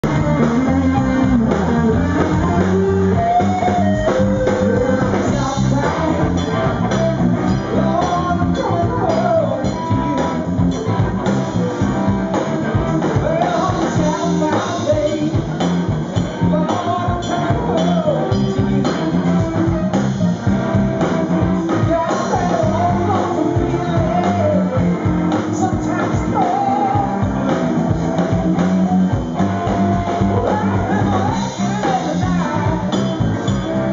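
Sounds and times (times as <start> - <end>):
bass guitar: 0.0 - 33.9
drums: 0.0 - 33.9
electric guitar: 0.0 - 33.9
man singing into microphone: 2.5 - 10.2, 13.1 - 19.6, 21.7 - 27.6, 30.2 - 33.9.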